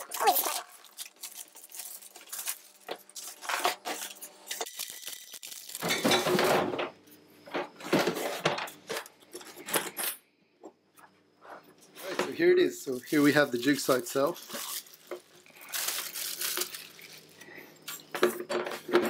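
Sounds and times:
plastic wrap crinkling: 0:00.0 - 0:06.2, 0:12.6 - 0:17.4.

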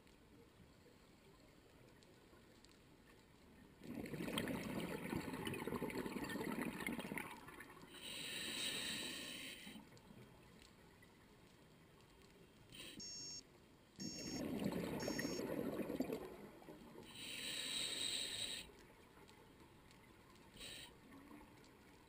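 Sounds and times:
exhaled bubbles gurgling underwater: 0:03.8 - 0:07.8, 0:14.2 - 0:17.1
regulator inhale hiss: 0:08.0 - 0:09.8, 0:17.0 - 0:18.7, 0:20.6 - 0:21.0.

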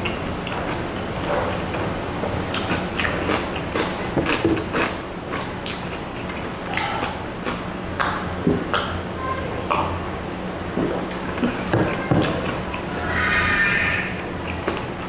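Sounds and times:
chewing mouth sounds: 0:02.5 - 0:08.9.

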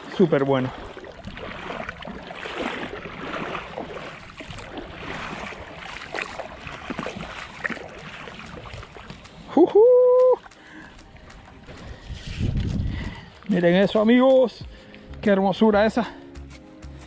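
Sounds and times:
shallow water sloshing: 0:00.0 - 0:09.6
fish splashing: 0:00.6 - 0:12.1
wind on microphone: 0:11.0 - 0:13.6.

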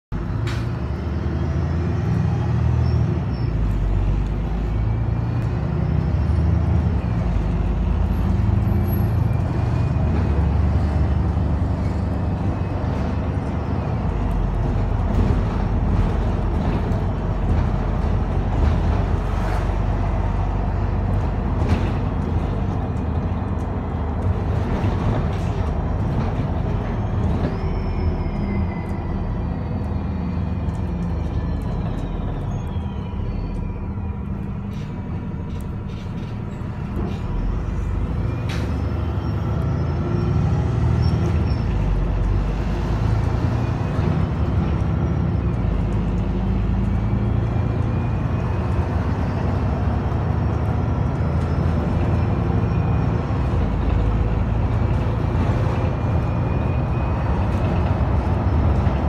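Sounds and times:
bus engine and road noise: 0:00.0 - 0:59.0
rattles and knocks from bus body: 0:14.0 - 0:20.4, 0:21.0 - 0:27.8.

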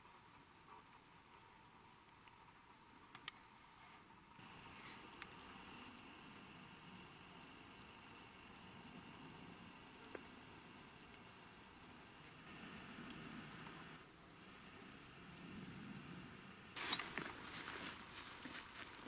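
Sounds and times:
faint clicks: 0:03.1 - 0:03.4, 0:05.1 - 0:05.4
small bird high calls: 0:04.4 - 0:17.6.

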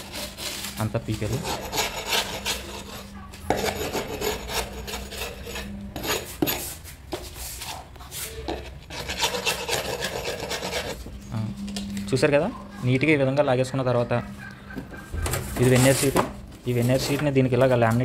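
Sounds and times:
chisel scraping wood: 0:00.0 - 0:11.1.

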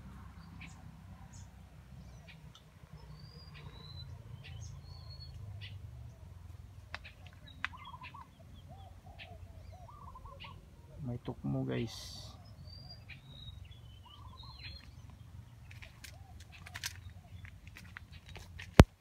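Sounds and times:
birds chirping and whistling: 0:00.4 - 0:06.2, 0:07.0 - 0:10.7, 0:11.8 - 0:18.6
dove cooing: 0:05.6 - 0:11.0, 0:14.0 - 0:14.9.

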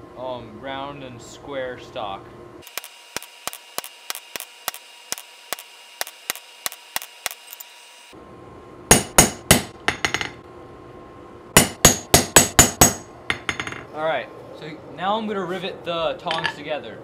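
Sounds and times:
harder hammer blows: 0:08.9 - 0:10.4, 0:11.6 - 0:13.8
hammer striking chisel ringing: 0:11.6 - 0:13.8.

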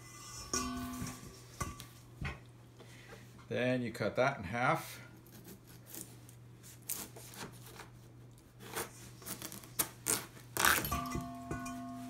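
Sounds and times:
knife cutting watermelon: 0:05.2 - 0:10.9.

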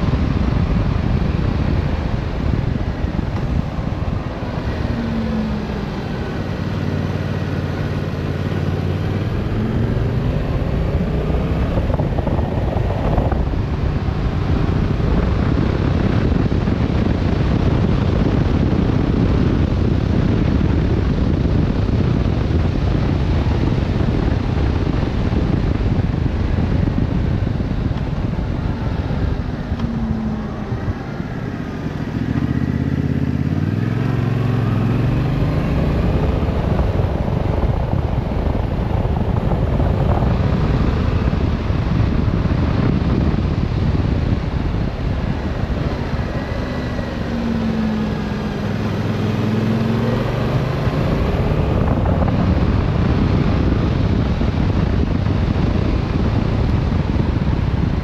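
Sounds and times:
motorcycle engine running: 0:00.0 - 0:58.0
wind rushing over microphone: 0:00.0 - 0:58.0.

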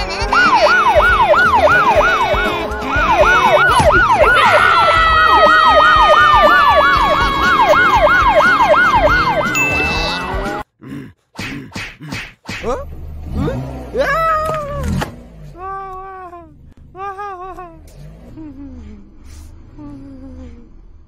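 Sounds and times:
yelp siren: 0:00.3 - 0:10.6.

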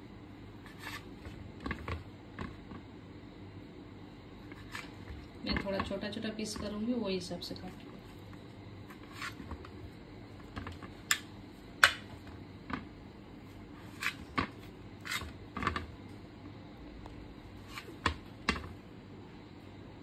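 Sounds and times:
knife crunching through bread crust: 0:15.0 - 0:15.4.

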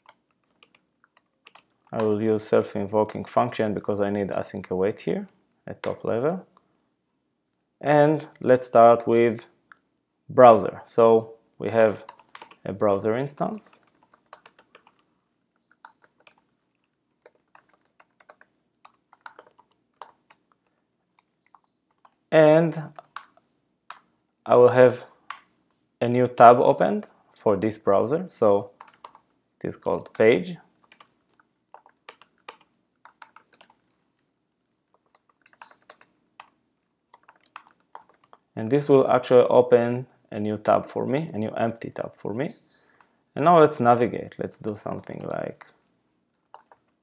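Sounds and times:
typing on a computer keyboard: 0:00.0 - 0:02.2, 0:11.8 - 0:12.8, 0:13.4 - 0:22.2, 0:22.8 - 0:24.1, 0:28.8 - 0:29.3, 0:30.0 - 0:38.5, 0:46.4 - 0:47.0.

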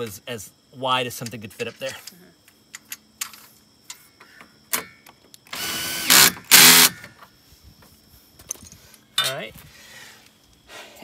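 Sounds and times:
cordless drill driving a bolt: 0:05.5 - 0:07.0.

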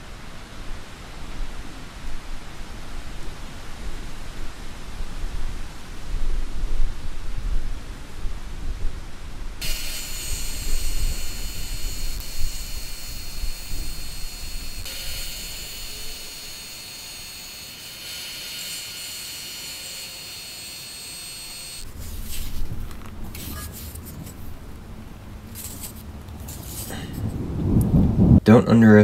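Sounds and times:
disc sander grinding wood: 0:09.6 - 0:22.5.

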